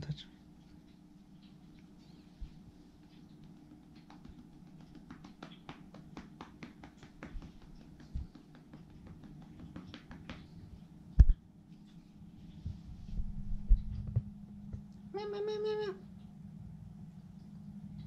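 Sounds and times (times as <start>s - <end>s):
hand patting cat: 2.4s - 11.4s.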